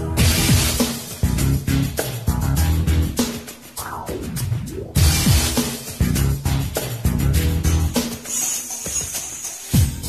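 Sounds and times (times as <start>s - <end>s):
instrumental backing music: 0.0s - 10.0s.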